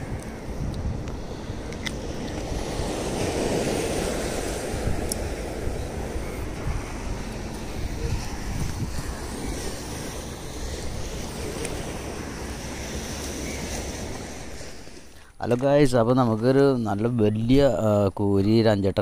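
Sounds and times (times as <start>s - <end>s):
sea surf: 0.0s - 15.9s
wind buffeting microphone: 0.0s - 18.4s.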